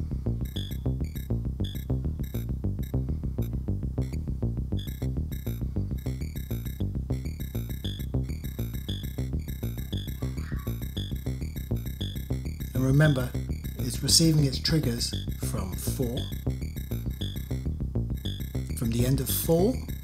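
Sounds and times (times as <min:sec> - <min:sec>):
repeating short sampled synth notes: 0:00.0 - 0:20.0
high synth blip: 0:04.8 - 0:20.0.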